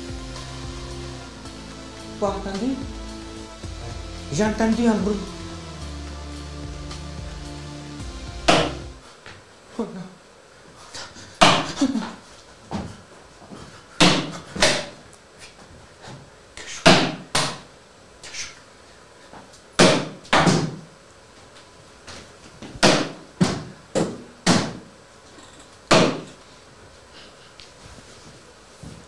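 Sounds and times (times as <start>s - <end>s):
heavy booming bangs: 6.6s - 9.0s.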